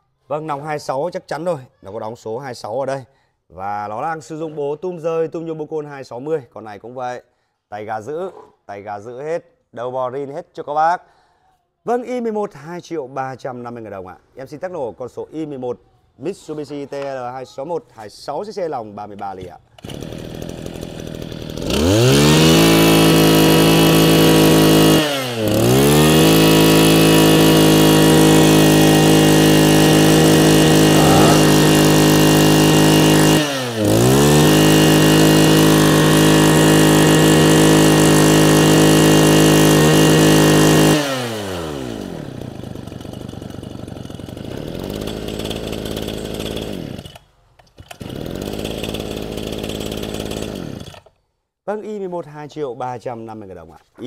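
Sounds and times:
brush cutter engine revving: 19.8s - 47.2s, 47.8s - 51.1s.

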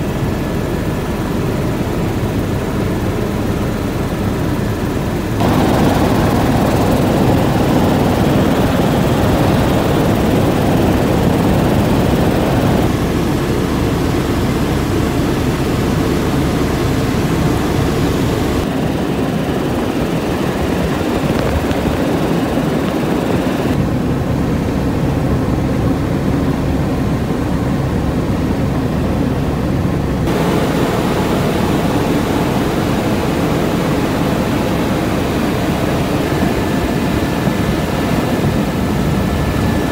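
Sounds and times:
helicopter rotor and engine drone: 0.0s - 39.9s.

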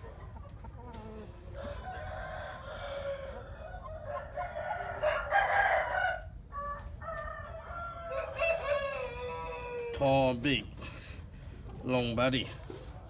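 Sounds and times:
roosters crowing: 0.0s - 10.4s.

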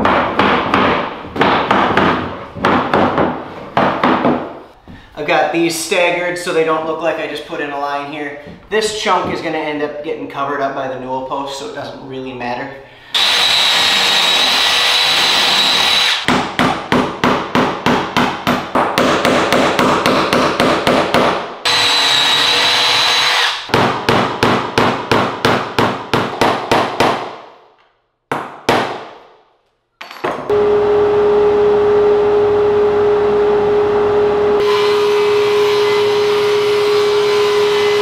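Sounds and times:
cordless drill whining: 13.2s - 16.2s, 21.7s - 23.6s
hammer driving nails: 13.2s - 29.2s
table saw humming: 21.7s - 23.6s, 30.5s - 38.0s.

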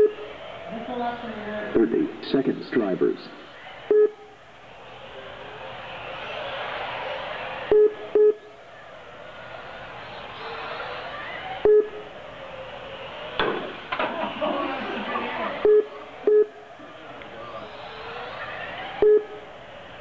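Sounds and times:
electric toy cars whining: 3.4s - 20.0s
short electronic beeps: 3.9s - 4.2s, 7.7s - 8.5s, 11.6s - 12.0s, 15.6s - 16.6s, 19.0s - 19.4s.

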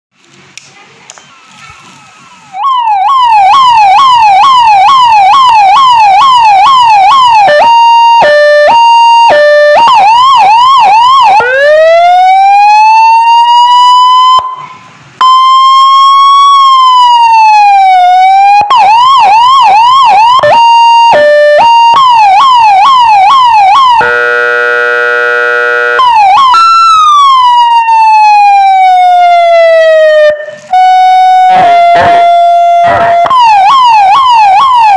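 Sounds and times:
electronic siren: 2.3s - 34.9s
buzzing air-horn tone: 23.9s - 26.2s.

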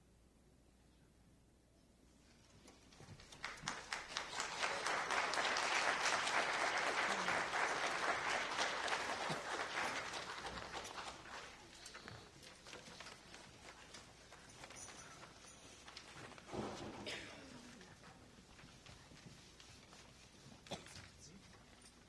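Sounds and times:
audience applauding: 3.0s - 14.5s.

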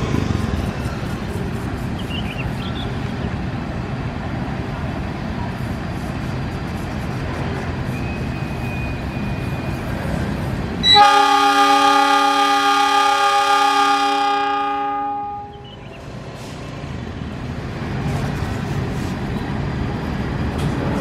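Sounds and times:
locomotive engine rumble: 0.0s - 21.0s
train air horn blast: 10.8s - 15.6s.

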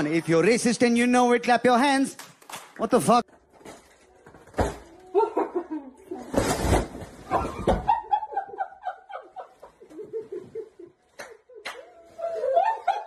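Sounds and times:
high-pitched laughter: 5.1s - 6.2s, 7.4s - 13.0s.

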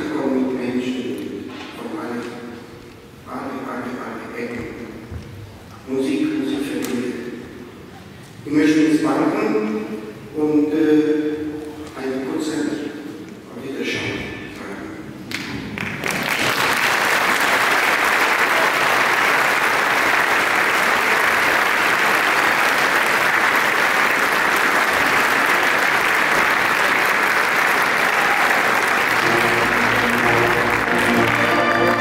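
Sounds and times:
audience applauding: 15.3s - 32.0s
orchestra sustained notes: 28.6s - 32.0s.

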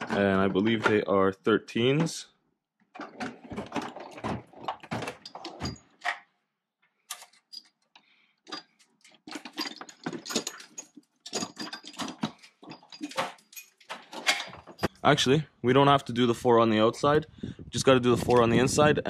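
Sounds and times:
metal tools clinking and rattling: 3.0s - 6.3s, 7.1s - 15.0s.

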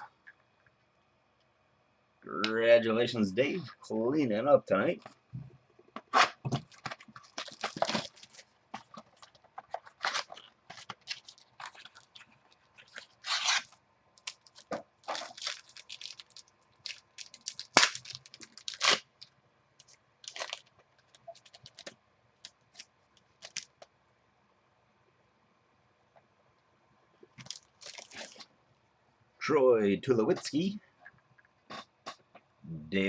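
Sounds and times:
plastic wrapper crinkling: 6.2s - 23.9s, 27.4s - 28.5s
scissors cutting plastic wrapper: 12.9s - 19.1s.

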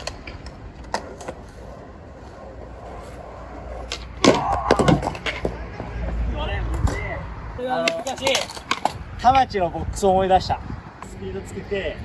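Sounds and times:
skateboard clacks on concrete: 0.0s - 3.0s, 3.6s - 7.1s, 7.7s - 9.4s
skateboard clattering away: 3.8s - 5.6s
low wind rumble on microphone: 8.9s - 12.0s.

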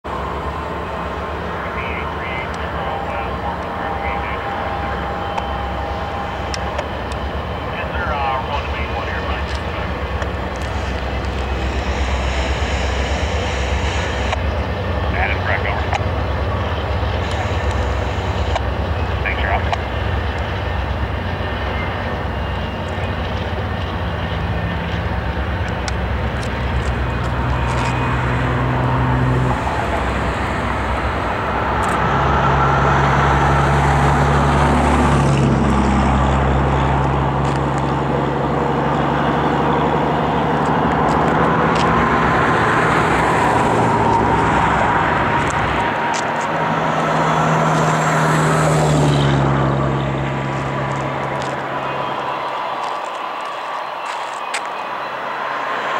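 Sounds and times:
diesel locomotive drone: 0.0s - 55.9s
road traffic rushing: 0.0s - 55.9s
vehicles swishing past: 24.4s - 55.9s.

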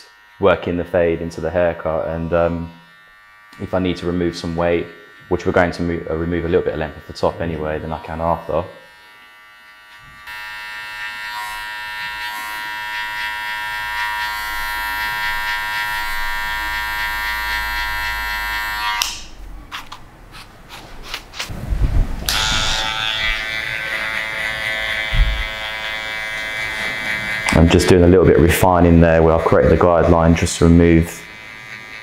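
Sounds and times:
electric hair clippers buzzing: 0.0s - 19.4s, 22.2s - 32.0s.

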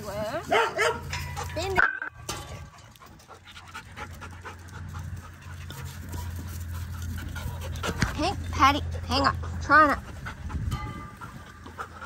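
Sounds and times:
dog panting: 2.5s - 12.0s.

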